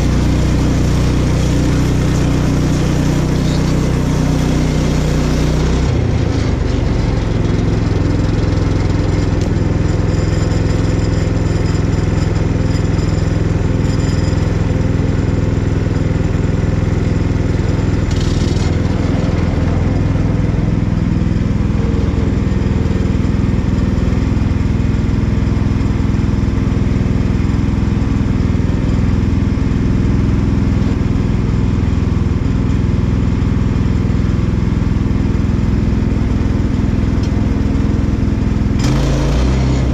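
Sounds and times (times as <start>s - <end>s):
bandsaw sawmill cutting log: 0.0s - 25.0s, 37.0s - 39.9s.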